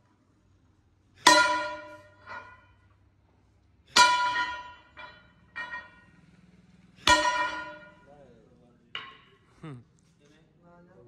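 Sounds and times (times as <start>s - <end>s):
hammer ringing on steel: 1.2s - 2.8s, 3.9s - 6.2s, 7.0s - 8.1s.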